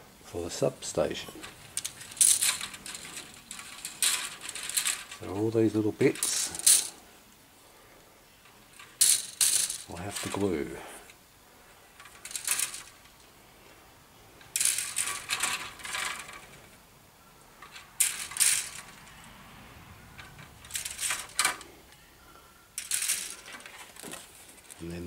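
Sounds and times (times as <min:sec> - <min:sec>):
plastic sprues clattering: 0:01.3 - 0:07.0, 0:08.4 - 0:11.2, 0:11.9 - 0:13.3, 0:14.4 - 0:16.8, 0:17.6 - 0:19.2, 0:20.2 - 0:21.7, 0:22.8 - 0:25.0.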